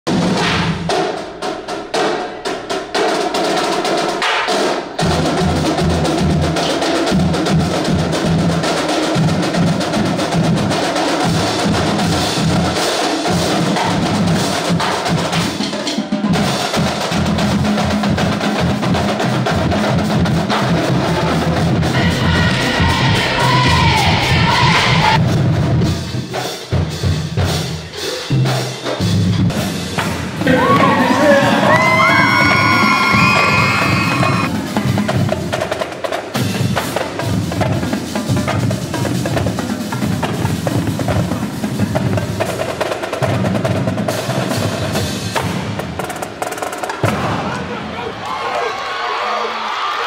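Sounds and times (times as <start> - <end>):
bass drums: 16.3 - 42.6.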